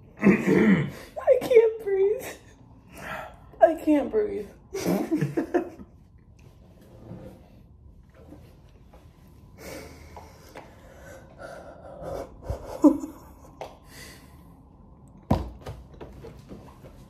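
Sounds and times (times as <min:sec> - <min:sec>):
stifled breathy laughter: 0:11.9 - 0:13.6.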